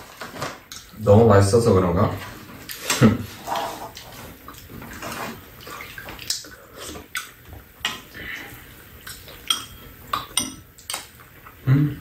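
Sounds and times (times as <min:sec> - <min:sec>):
utensils clinking against bowls: 0:09.4 - 0:11.1.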